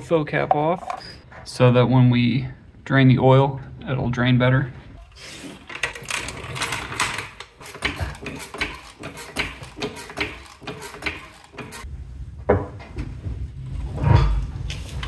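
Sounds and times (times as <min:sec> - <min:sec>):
floor jack pump clicking and clanking: 0:05.5 - 0:11.9.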